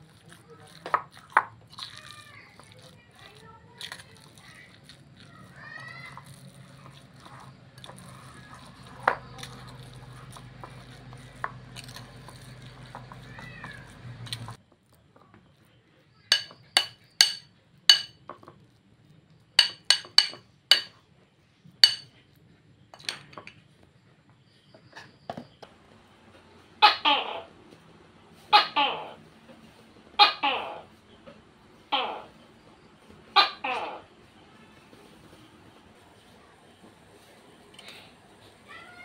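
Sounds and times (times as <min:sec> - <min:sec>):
metal spoon clinking ceramic bowl: 0:16.3 - 0:18.2, 0:19.6 - 0:20.9, 0:21.8 - 0:22.1.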